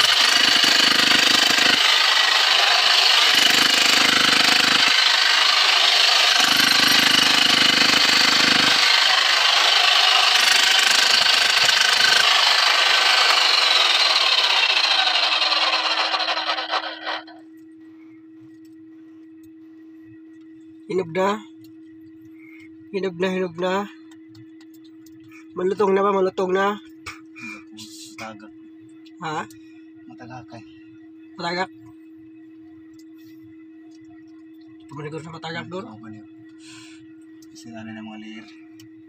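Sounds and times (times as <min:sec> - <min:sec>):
rock drill drilling into rock: 0:00.0 - 0:17.3.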